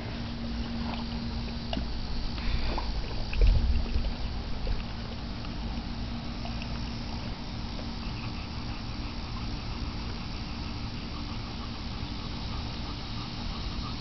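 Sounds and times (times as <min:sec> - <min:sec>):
low rumble: 0:00.0 - 0:08.4
water sloshing and lapping: 0:00.0 - 0:14.0.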